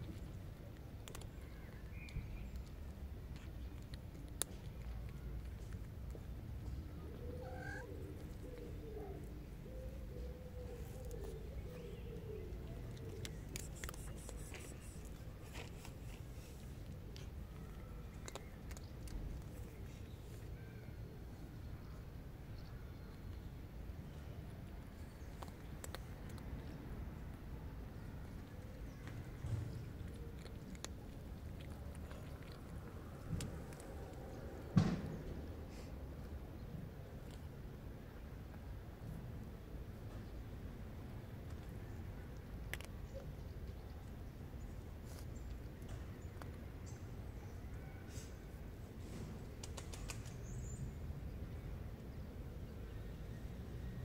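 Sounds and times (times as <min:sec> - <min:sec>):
cat chewing crunchy food: 0:00.0 - 0:06.9, 0:10.6 - 0:20.5, 0:24.7 - 0:34.5
low outdoor rumble: 0:00.0 - 0:47.8.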